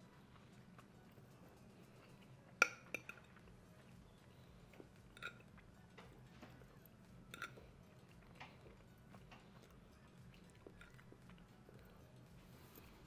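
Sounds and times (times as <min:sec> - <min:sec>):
metal fork tapping ceramic plate: 0:02.6 - 0:03.3.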